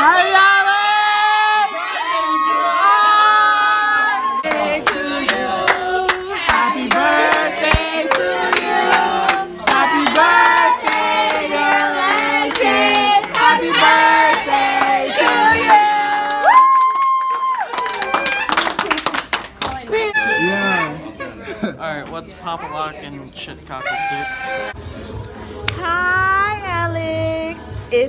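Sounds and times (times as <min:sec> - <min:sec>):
group of people singing: 0:02.4 - 0:16.4
hand claps in steady beat: 0:04.4 - 0:19.9.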